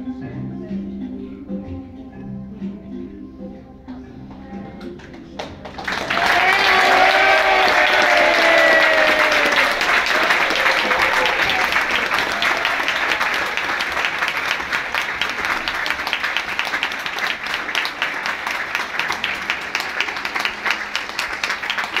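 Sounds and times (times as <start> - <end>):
audience applauding: 5.0 - 22.0.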